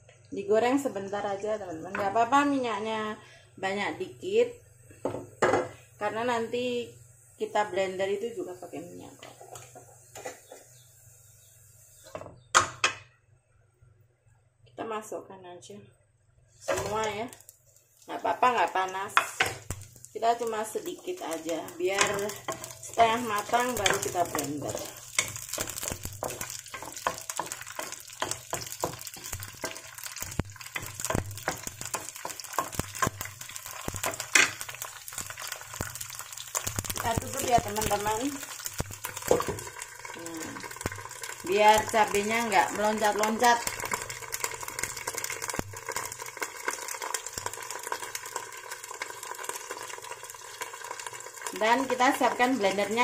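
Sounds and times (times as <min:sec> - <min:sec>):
food sizzling in hot oil: 0:00.0 - 0:13.1, 0:16.5 - 0:53.0
spatula stirring in pan: 0:09.2 - 0:10.8, 0:16.6 - 0:20.1, 0:20.7 - 0:53.0
oil popping and crackling: 0:16.6 - 0:53.0.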